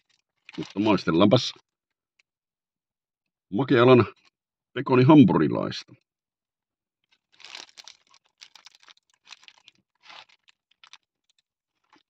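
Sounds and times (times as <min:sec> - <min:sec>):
paper wrapper crinkling: 0:00.0 - 0:01.8, 0:07.0 - 0:12.0.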